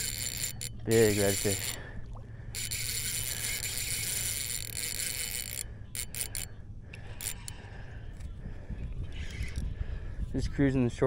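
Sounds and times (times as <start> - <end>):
fishing reel drag buzzing: 0.0 - 1.9, 2.5 - 8.3, 9.1 - 9.6.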